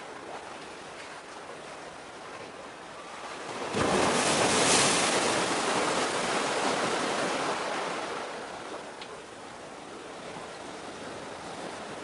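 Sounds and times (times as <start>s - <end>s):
wave breaking and washing in: 2.9s - 12.0s.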